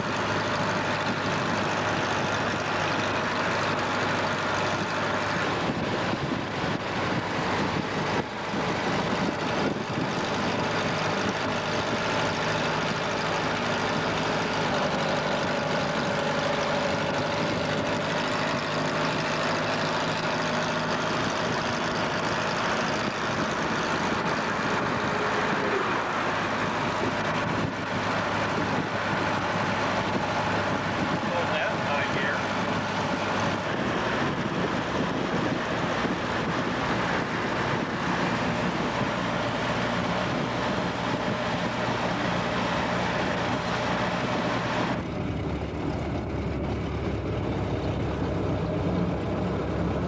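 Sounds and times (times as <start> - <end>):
car cabin road drone: 0.0 - 50.0.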